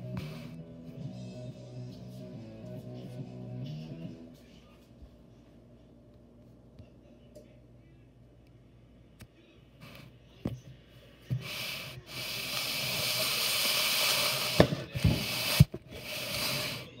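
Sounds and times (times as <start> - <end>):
rubbing hiss: 11.3 - 17.0.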